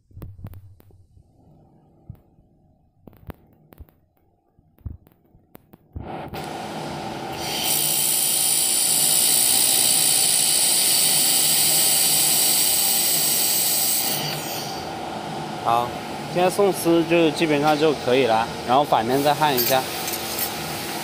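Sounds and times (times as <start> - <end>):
machine hum: 0.0 - 21.0
high-pitched welding hiss: 7.3 - 14.8, 19.0 - 21.0.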